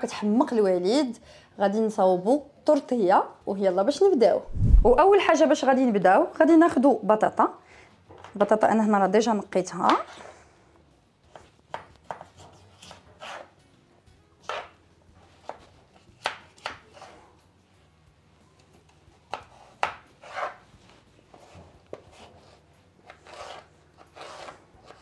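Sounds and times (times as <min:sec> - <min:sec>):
knife slicing raw potato: 0:15.4 - 0:17.2.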